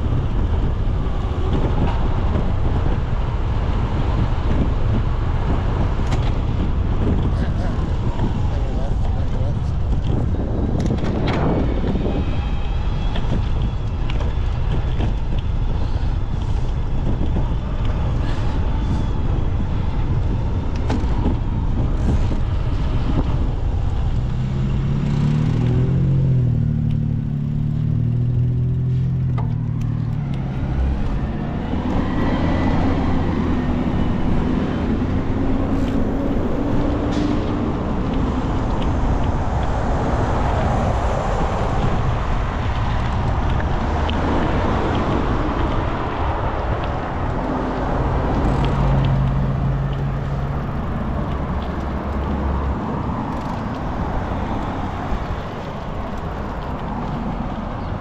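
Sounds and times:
traffic rumble: 0:00.0 - 0:58.0
vehicle engine droning: 0:00.0 - 0:58.0
engine rising in pitch: 0:24.3 - 0:41.9.

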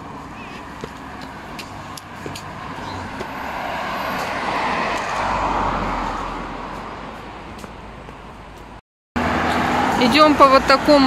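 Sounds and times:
vehicle passing by: 0:01.4 - 0:08.0, 0:09.2 - 0:11.0.

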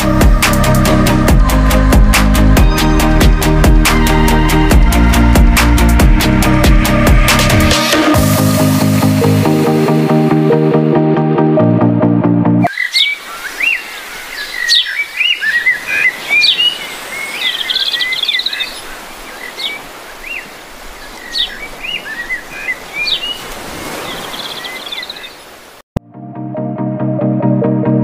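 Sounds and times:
birds chirping and trilling: 0:12.6 - 0:25.8.

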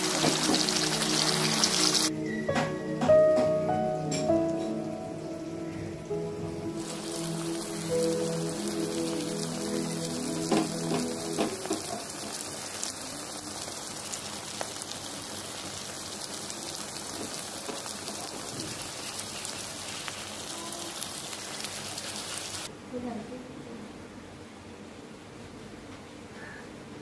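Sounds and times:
oil sizzling in a wok: 0:00.0 - 0:02.1, 0:04.0 - 0:22.7.

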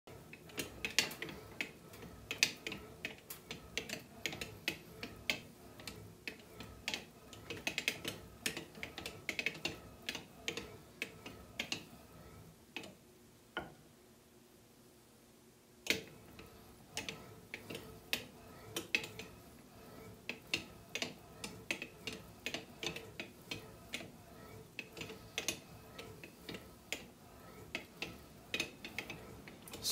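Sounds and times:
bat rolling press clicking: 0:00.3 - 0:13.0, 0:15.8 - 0:29.8.

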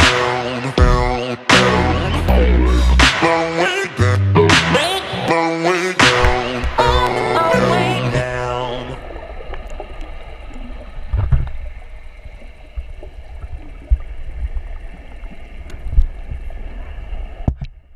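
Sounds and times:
background music: 0:00.0 - 0:09.0
muffled underwater rumbling: 0:06.2 - 0:17.9.

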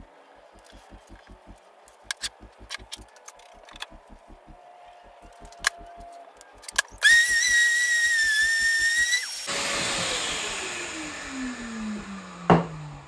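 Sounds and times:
orbital sander whining: 0:06.6 - 0:12.5.

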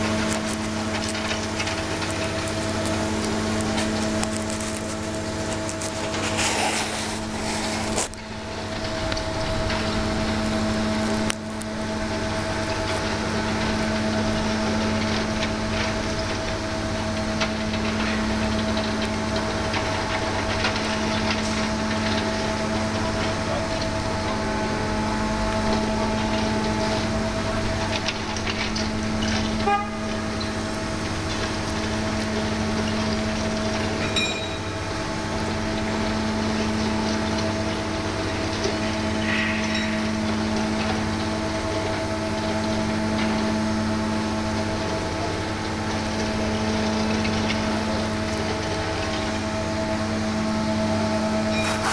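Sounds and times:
excavator engine and hydraulic drone: 0:00.0 - 0:51.9
cutter grinding concrete: 0:51.4 - 0:51.9.

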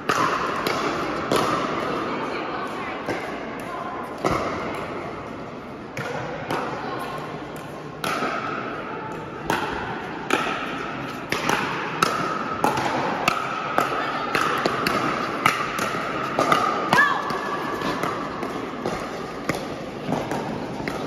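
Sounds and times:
ball bouncing: 0:07.6 - 0:21.0
paddle hitting ball: 0:09.4 - 0:21.0.

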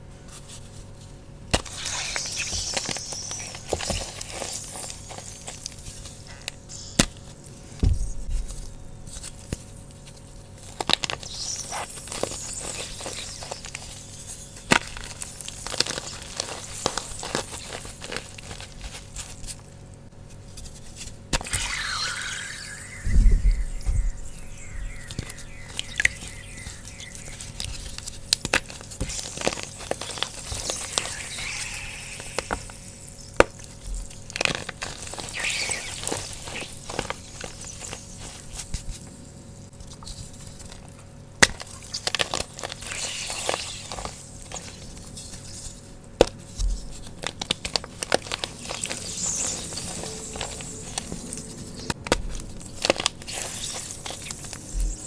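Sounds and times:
fizzing sizzle of chalk in water: 0:01.5 - 0:07.8, 0:08.4 - 0:19.8, 0:20.4 - 0:40.8, 0:41.6 - 0:52.0, 0:52.6 - 0:55.0.

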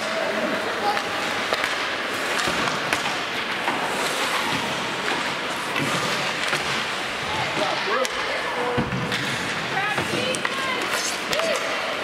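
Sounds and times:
hockey sticks and puck clacking: 0:00.0 - 0:12.0
thuds against rink boards: 0:08.7 - 0:11.7.

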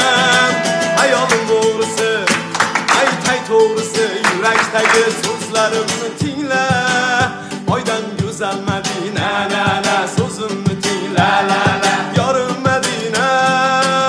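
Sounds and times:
acoustic guitar strummed and picked: 0:00.0 - 0:14.0
hand claps: 0:00.8 - 0:06.0.

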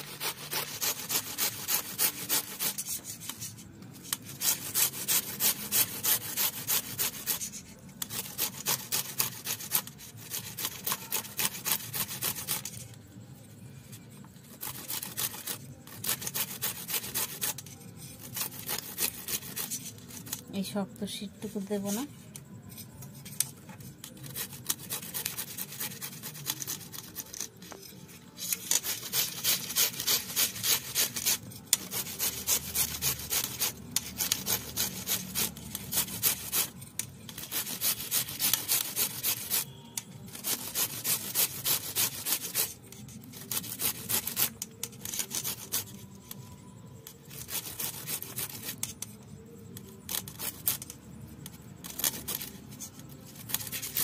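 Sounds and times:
cauliflower rasping on grater: 0:04.2 - 0:12.8.

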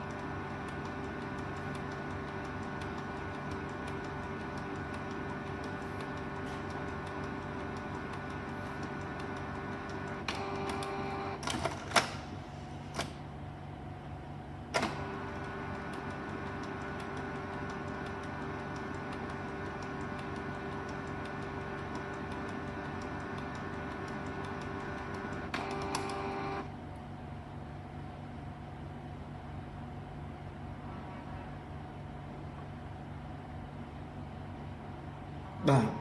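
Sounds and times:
printer sharp clicks and clacks: 0:00.0 - 0:12.2, 0:14.7 - 0:26.7
printer mechanical whir: 0:00.0 - 0:26.8.

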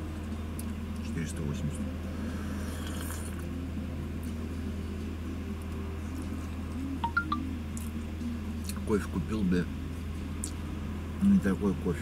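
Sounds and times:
short high beeps: 0:07.0 - 0:07.4.

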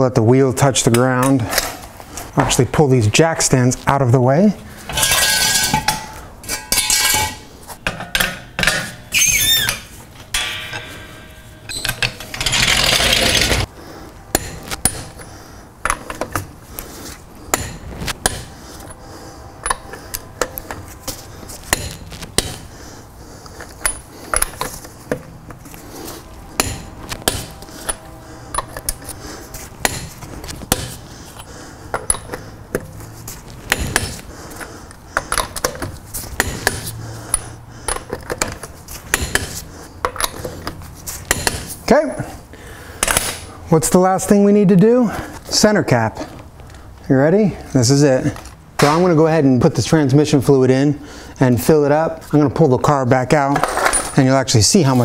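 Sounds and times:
hand tools clinking on metal: 0:04.8 - 0:13.7
metal jack stands clanking: 0:04.8 - 0:13.7.

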